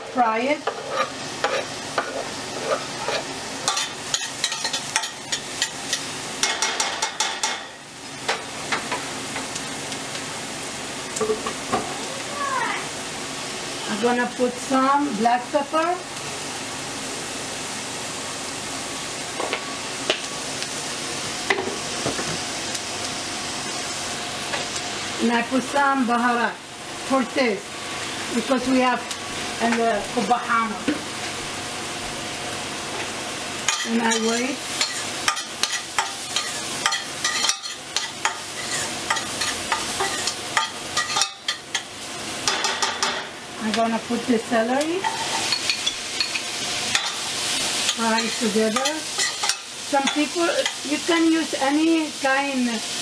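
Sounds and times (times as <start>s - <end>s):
onion sizzling in hot oil: 0.0s - 53.0s
metal spoon scraping pot: 0.6s - 5.1s.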